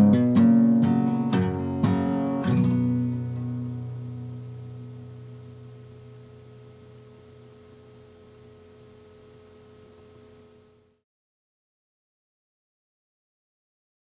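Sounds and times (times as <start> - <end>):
acoustic guitar chord: 0.0 - 5.6
faint high whine: 0.0 - 11.0
steady electrical hum: 0.0 - 11.0.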